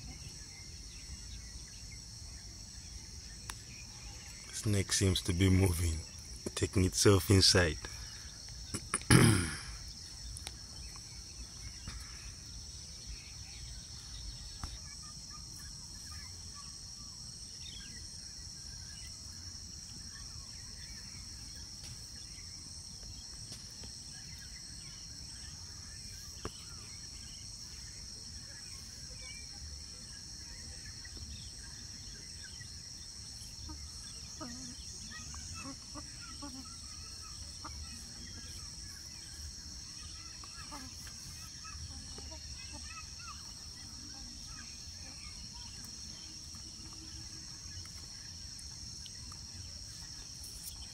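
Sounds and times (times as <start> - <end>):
insect chorus drone: 0.0 - 50.9
faint chicken calls: 33.5 - 38.9.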